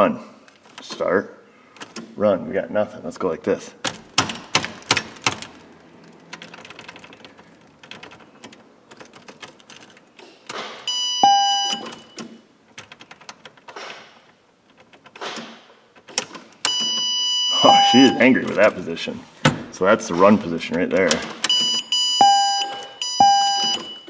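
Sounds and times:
ignition key clicks and rattles: 3.8s - 10.2s, 11.8s - 16.9s.

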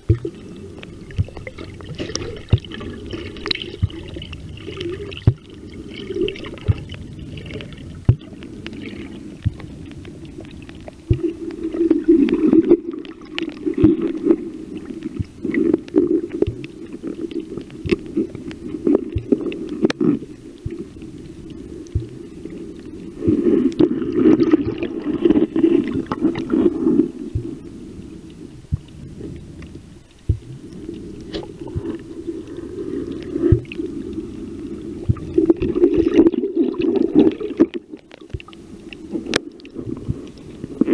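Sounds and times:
water sloshing underwater: 0.0s - 40.9s.

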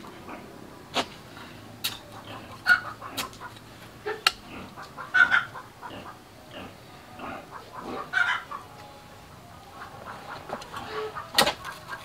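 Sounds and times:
chickens clucking: 0.0s - 12.0s
hand hoe striking soil: 11.3s - 11.8s.

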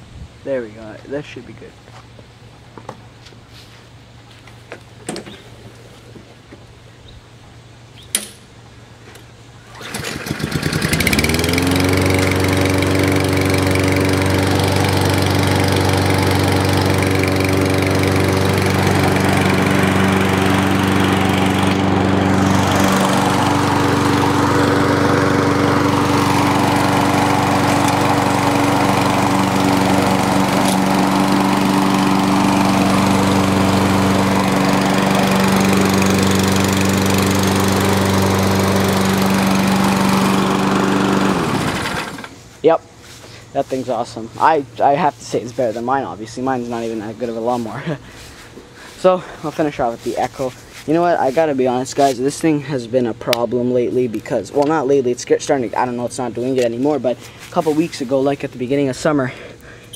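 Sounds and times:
sharp click: 8.0s - 8.5s
lawn mower engine starting and running: 8.0s - 59.9s.

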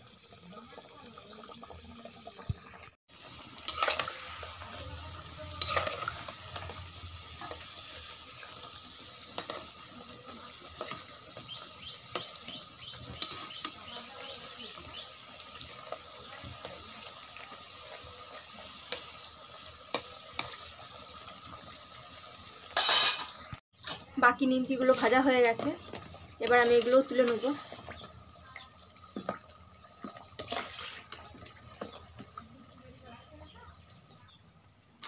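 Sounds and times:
dough sizzling in hot oil: 0.0s - 35.0s
metal spatula scraping wok: 2.8s - 21.7s, 22.6s - 28.4s, 30.0s - 32.5s.

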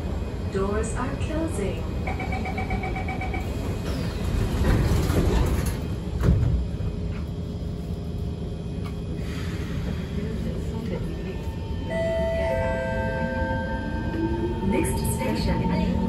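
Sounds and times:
train humming: 0.0s - 16.0s
door-closing warning beeps: 2.1s - 3.5s
train doors sliding shut: 3.4s - 6.8s.

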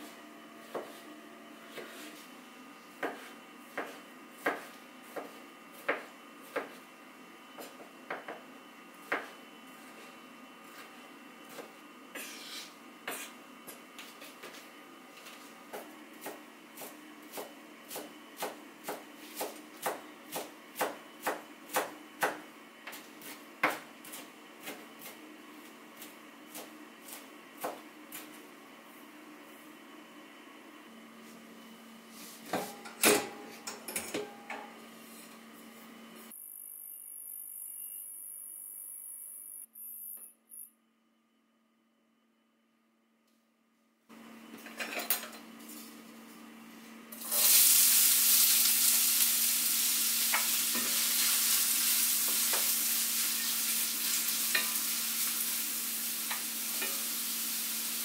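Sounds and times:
knife scraping board: 0.6s - 2.3s, 11.5s - 13.4s
knife chopping on wooden board: 0.7s - 1.0s, 3.0s - 6.8s, 15.7s - 25.2s.

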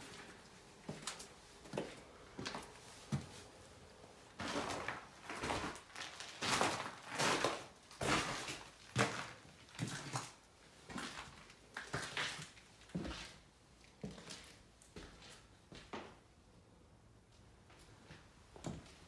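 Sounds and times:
footsteps crunching over debris: 4.3s - 13.4s.

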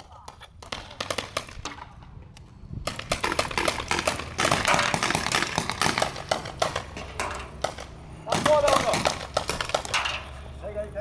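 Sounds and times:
paintball guns firing: 0.0s - 2.1s, 2.8s - 10.3s.

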